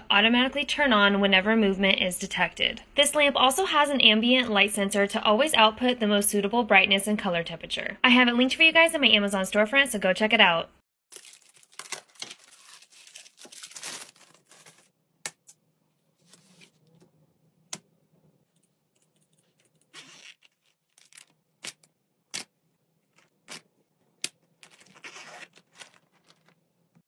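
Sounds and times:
plastic packaging rustling: 0:11.1 - 0:14.9, 0:24.4 - 0:26.7.

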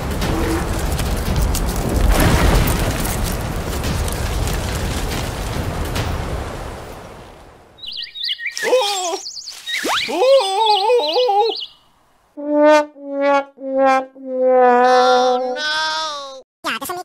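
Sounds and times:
cartoon squeaky chirps: 0:07.8 - 0:11.8, 0:13.7 - 0:16.4.

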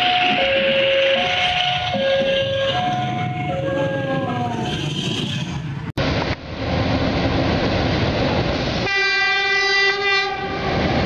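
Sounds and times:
diesel locomotive rumbling: 0:00.0 - 0:11.0
locomotive horn blast: 0:08.8 - 0:10.9.

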